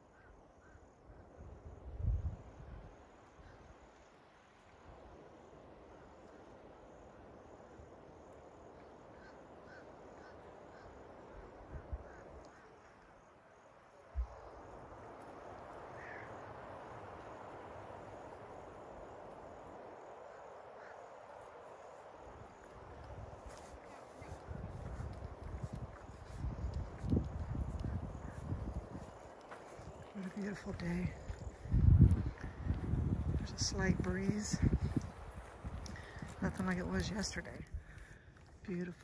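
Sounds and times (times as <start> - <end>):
faint bird calls: 0.0 - 1.4, 8.7 - 14.4, 15.9 - 16.6, 20.2 - 21.9
wind through pine trees: 0.0 - 39.0.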